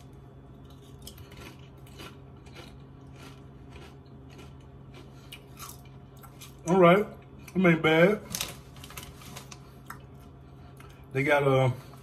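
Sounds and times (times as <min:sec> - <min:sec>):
tortilla chips crunching: 0:00.0 - 0:06.8, 0:08.3 - 0:10.1
steady low hum: 0:00.0 - 0:12.0.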